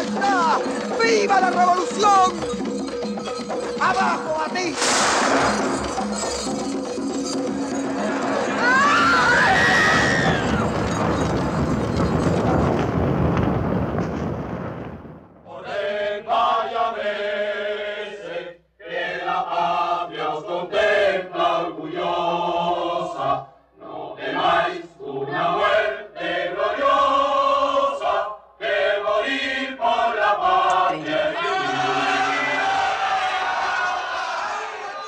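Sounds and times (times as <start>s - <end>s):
choir singing: 15.5s - 35.0s.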